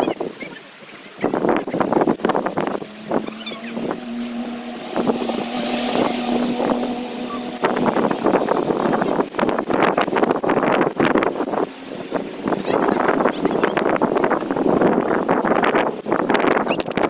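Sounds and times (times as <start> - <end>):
car driving past: 2.0 - 15.0.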